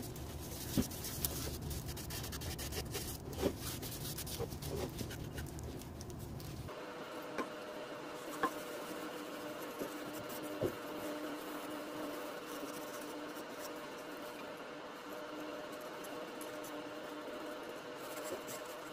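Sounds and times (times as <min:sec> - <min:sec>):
steady low hum: 0:00.0 - 0:18.9
cloth rubbing on wood: 0:08.2 - 0:14.3.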